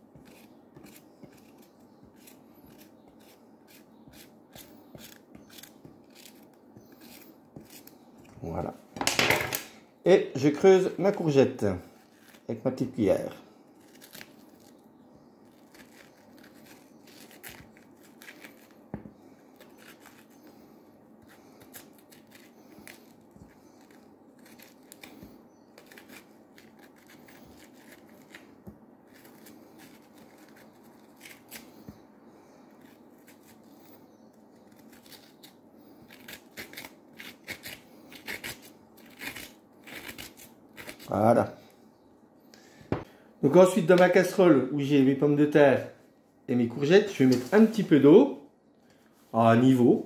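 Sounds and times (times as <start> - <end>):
teaspoon scraping courgette: 0.1 - 8.0, 21.2 - 28.5.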